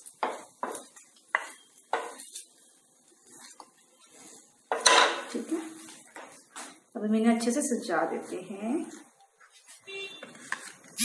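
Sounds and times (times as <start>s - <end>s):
spatula scraping a griddle: 0.0s - 6.1s.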